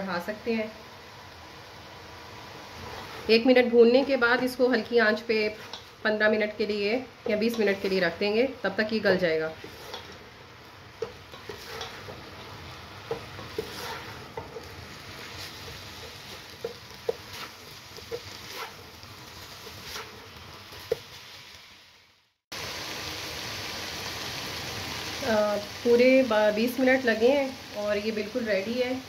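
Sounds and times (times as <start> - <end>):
meat sizzling in a pan: 0.0 - 29.0
spatula scraping a pan: 2.8 - 4.2, 5.0 - 6.0, 9.0 - 10.3, 11.0 - 21.0.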